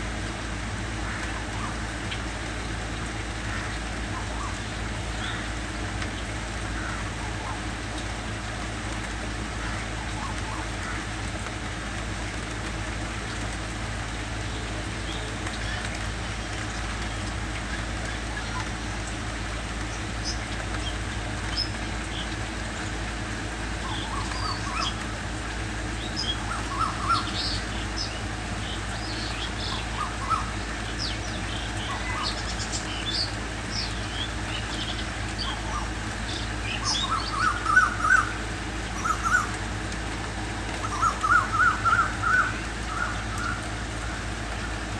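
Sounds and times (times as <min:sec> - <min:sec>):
rain hiss: 0:00.0 - 0:44.9
cuckoo calling: 0:23.8 - 0:25.1, 0:26.1 - 0:28.2, 0:28.9 - 0:39.7, 0:40.8 - 0:44.1.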